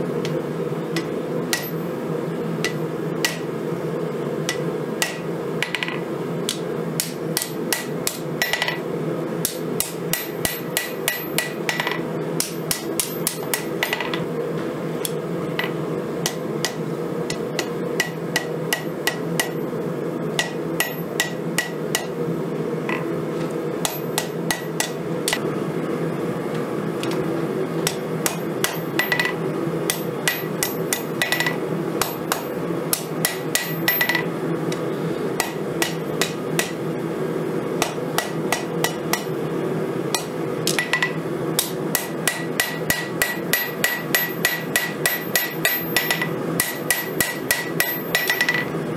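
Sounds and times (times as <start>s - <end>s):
steady low hum: 0.0s - 48.9s
hammer ringing on anvil: 1.0s - 1.9s, 9.8s - 14.2s, 20.4s - 22.1s, 23.8s - 25.4s, 27.9s - 34.8s, 40.2s - 48.7s.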